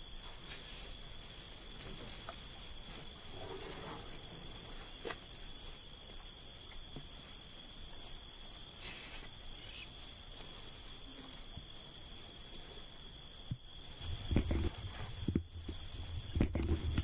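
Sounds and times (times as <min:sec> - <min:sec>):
insect chirring: 0:00.0 - 0:17.0
low background rumble: 0:09.4 - 0:17.0.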